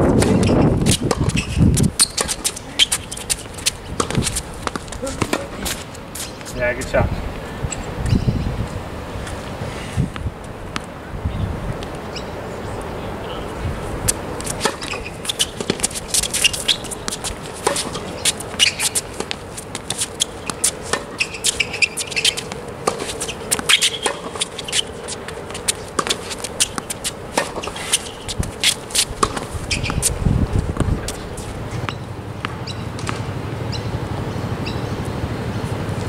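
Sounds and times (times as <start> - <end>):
racket hitting tennis ball: 0.1 - 6.9, 14.1 - 33.3
shoes scuffing on court: 0.1 - 7.8, 14.0 - 33.3
ball bouncing: 0.2 - 5.6, 14.4 - 33.3.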